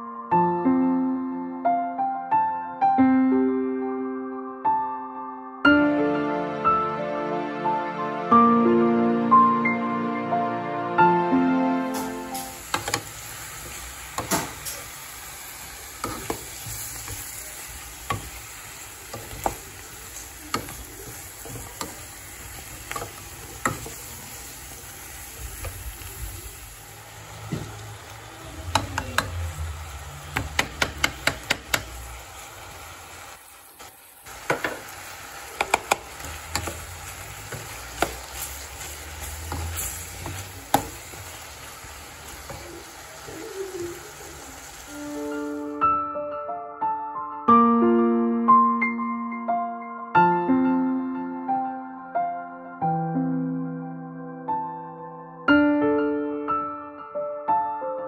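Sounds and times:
vegetables sizzling in a pot: 0:11.9 - 0:45.8
spoon tapping a metal pot: 0:30.4 - 0:31.9, 0:35.6 - 0:36.8.

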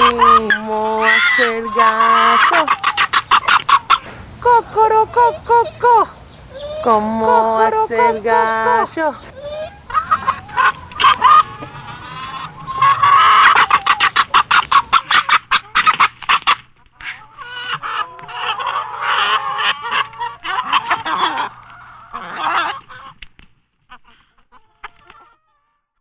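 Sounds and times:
chickens clucking and cackling: 0:00.0 - 0:25.8.

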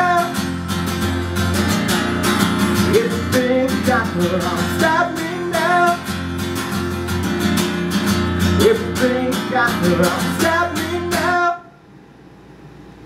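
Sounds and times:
man singing: 0:00.0 - 0:00.6, 0:02.8 - 0:06.2, 0:08.5 - 0:11.8
acoustic guitar strumming: 0:00.0 - 0:11.7.

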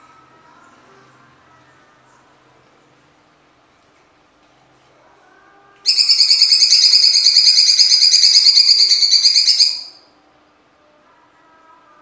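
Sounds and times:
bird rattling trill: 0:05.9 - 0:10.0.

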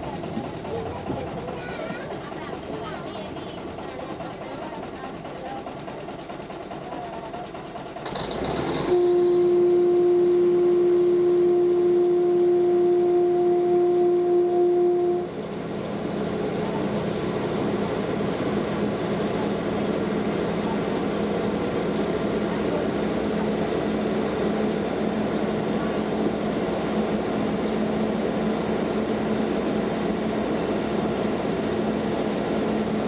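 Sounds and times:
wheels on rails: 0:00.0 - 0:09.0
diesel engine: 0:00.0 - 0:33.0
train horn long blast: 0:08.8 - 0:15.4.

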